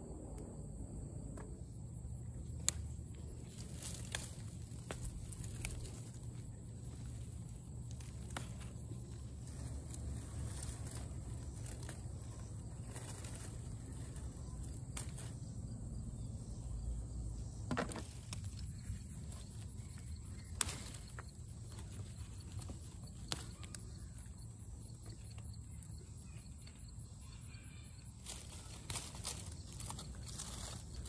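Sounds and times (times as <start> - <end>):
low steady rumble: 0.0 - 17.6
vines and leaves rustling: 2.1 - 31.0.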